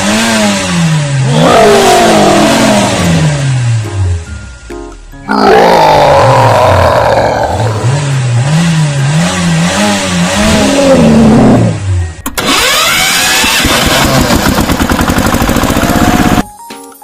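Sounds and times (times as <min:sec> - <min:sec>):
tractor engine revving and chugging: 0:00.0 - 0:04.6, 0:05.6 - 0:16.5.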